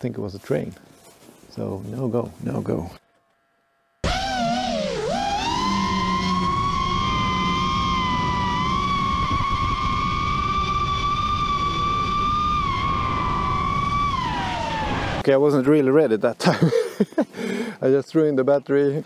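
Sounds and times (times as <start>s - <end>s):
quadcopter motors whining: 4.0s - 15.2s.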